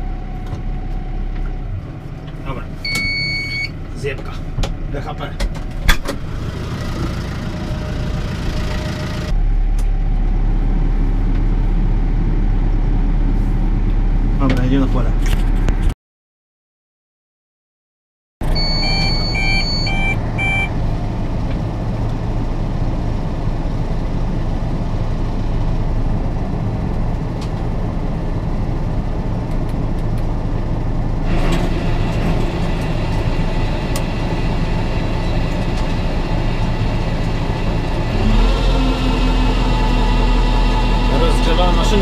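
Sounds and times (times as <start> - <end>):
tractor engine: 0.0 - 15.7, 18.4 - 42.0
short electronic warning beeps: 2.9 - 3.7, 18.5 - 20.7.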